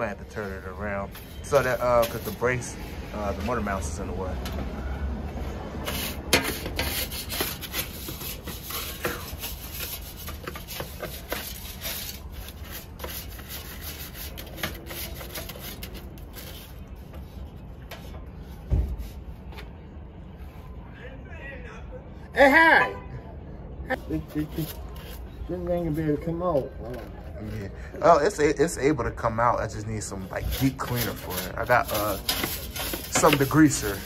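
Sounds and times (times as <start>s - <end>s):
brush scrubbing fan blades: 0.1s - 4.2s, 5.6s - 17.5s, 29.6s - 34.0s.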